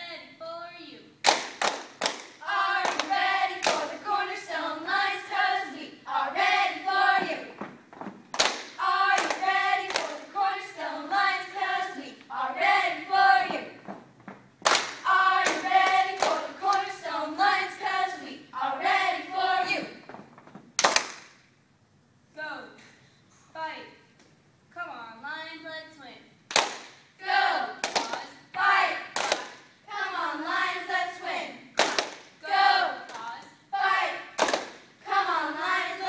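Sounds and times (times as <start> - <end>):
sharp hand claps: 1.2 - 3.9, 8.3 - 10.2, 14.6 - 16.8, 20.8 - 21.4, 26.5 - 27.0, 27.8 - 28.3, 29.2 - 29.6, 31.8 - 32.4, 34.4 - 34.9
girls chanting a cheer: 2.4 - 7.6, 8.6 - 13.8, 14.8 - 20.0, 27.2 - 36.0.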